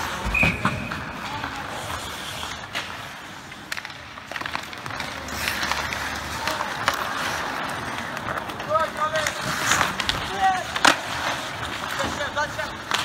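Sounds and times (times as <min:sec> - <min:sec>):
hockey sticks and puck clacking: 0:00.0 - 0:13.0
skate blades scraping ice: 0:00.0 - 0:13.0.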